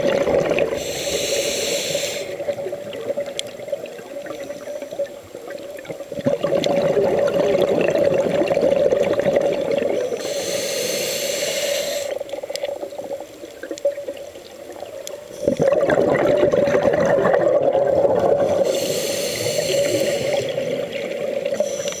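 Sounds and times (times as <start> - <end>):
bubbling exhalations underwater: 0.0 - 0.8, 6.1 - 10.1, 15.4 - 18.8
regulator inhalation hiss: 0.7 - 2.6, 9.9 - 12.3, 18.4 - 22.0.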